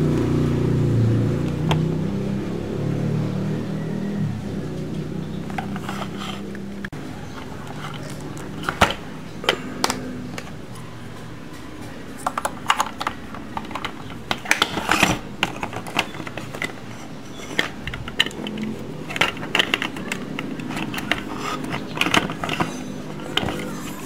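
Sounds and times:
plastic toy parts clattering: 5.5 - 6.5, 7.3 - 10.6, 11.7 - 24.0.

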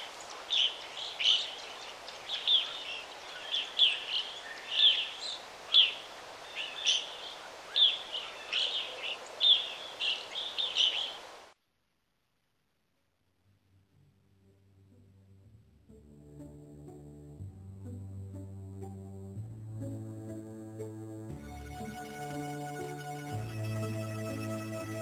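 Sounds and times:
bird chirping: 0.0 - 11.3
steady background hiss: 0.0 - 11.6.

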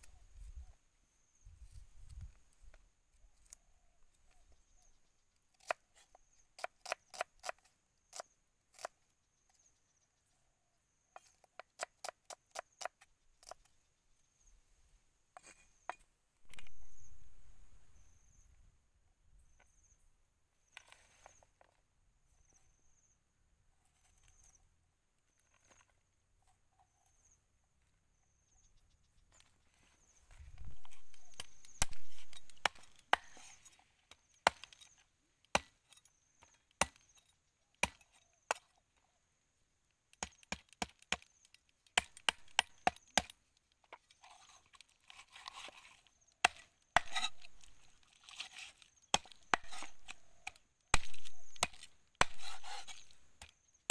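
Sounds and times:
cleaver chopping raw chicken: 49.1 - 53.5.

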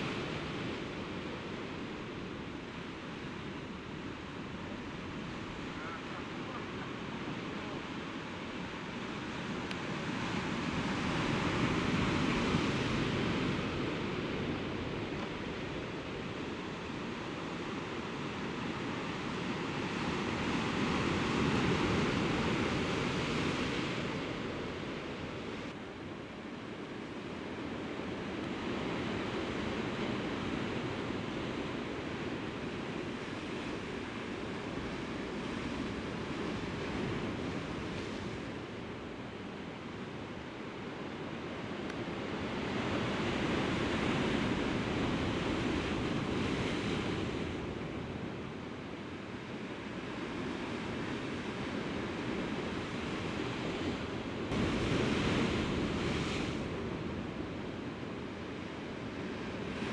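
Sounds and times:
sea surf washing against rocks: 50.4 - 59.9.

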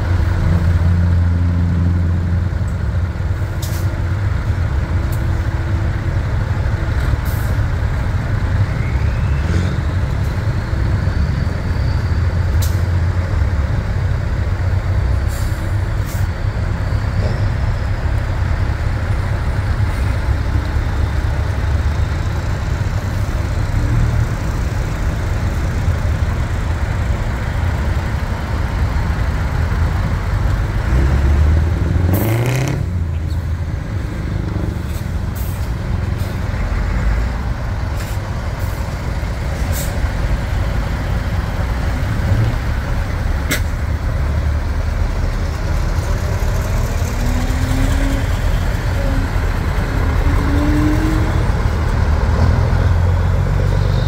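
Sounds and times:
diesel truck engines running: 0.0 - 54.0
truck engine revving: 40.0 - 54.0.

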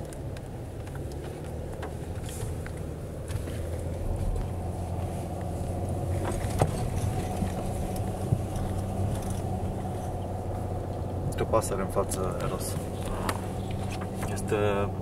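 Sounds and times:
small clicks and crackles: 0.0 - 11.0
car engine and tyre drone: 0.0 - 15.0.

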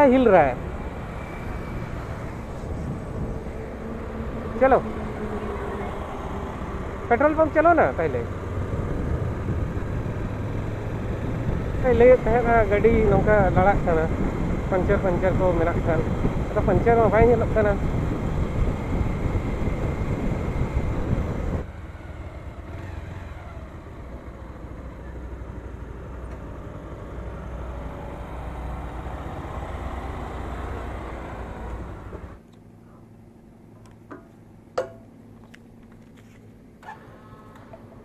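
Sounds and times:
wind rushing over microphone: 0.0 - 21.8
motorcycle engine idling: 32.4 - 38.0.

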